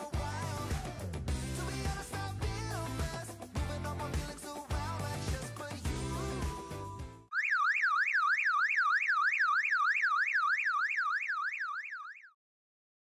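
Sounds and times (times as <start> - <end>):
background music: 0.0 - 7.3
warbling siren alarm: 7.3 - 12.4.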